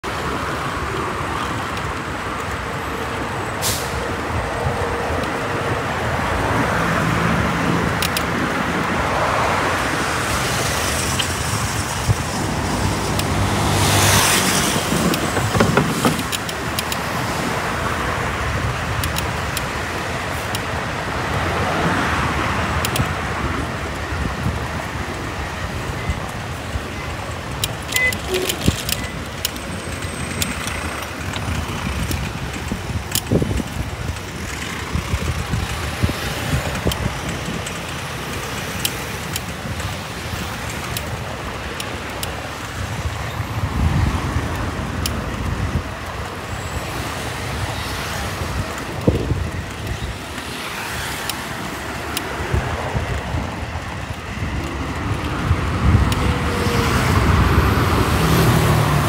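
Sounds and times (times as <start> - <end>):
traffic rumble: 0.0 - 59.0
vehicles passing: 0.0 - 59.0
sharp clicks: 7.9 - 8.3, 10.6 - 17.2, 19.0 - 19.7, 22.8 - 23.2, 27.3 - 43.1, 47.9 - 56.4.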